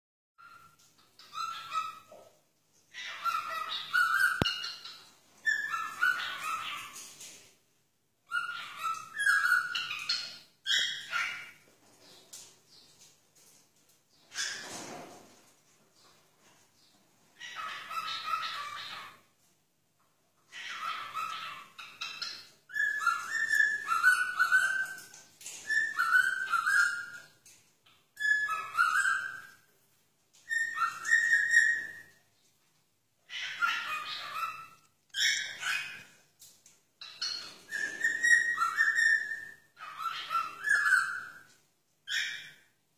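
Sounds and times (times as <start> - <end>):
cockatiel squawky calls: 0.4 - 2.3, 2.9 - 7.0, 8.3 - 11.6, 17.4 - 19.2, 20.5 - 25.1, 25.7 - 27.3, 28.2 - 29.6, 30.5 - 32.2, 33.3 - 36.1, 37.0 - 41.5, 42.1 - 42.7
cockatiel whistling a tune: 22.7 - 27.2, 28.2 - 29.6, 30.5 - 32.1, 37.0 - 41.4.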